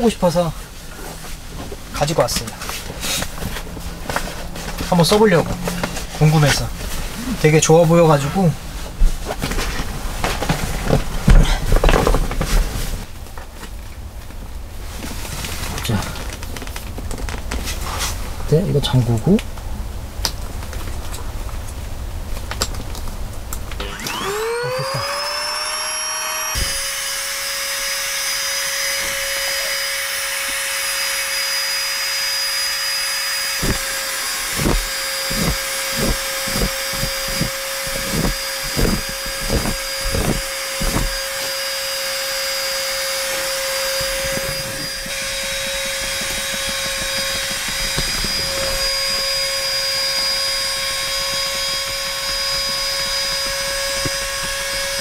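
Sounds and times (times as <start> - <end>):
electric air pump whining: 0.0 - 13.1, 23.6 - 55.0
soft low thumps: 43.9 - 50.0.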